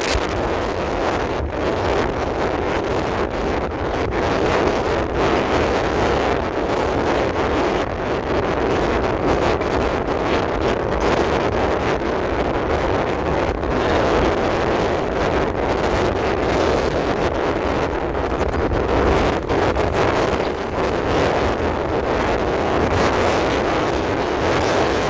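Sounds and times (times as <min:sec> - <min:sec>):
car road noise: 0:00.0 - 0:00.9, 0:16.2 - 0:25.0
wind buffeting microphone: 0:00.0 - 0:25.0.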